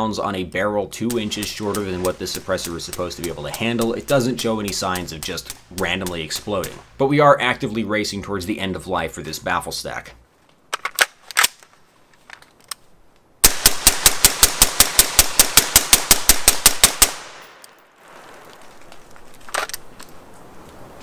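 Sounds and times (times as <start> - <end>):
sharp gun clicks: 1.1 - 6.9, 10.7 - 11.7
rapid suppressed gunshots: 1.1 - 7.0, 13.4 - 17.5.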